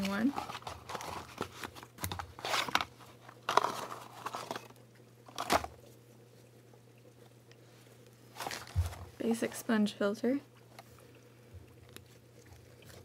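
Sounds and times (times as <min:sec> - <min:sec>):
cardboard box packaging crinkling: 0:00.0 - 0:05.9, 0:08.4 - 0:09.1.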